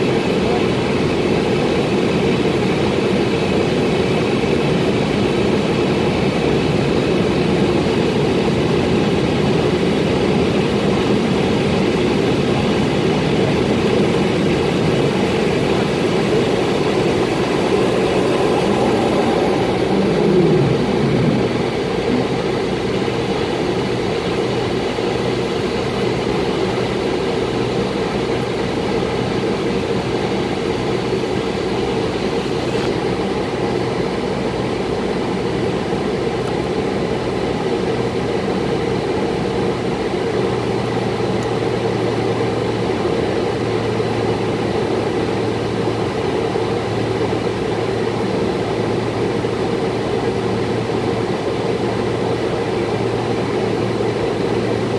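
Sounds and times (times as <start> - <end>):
jet engines and rushing air: 0.0 - 34.0.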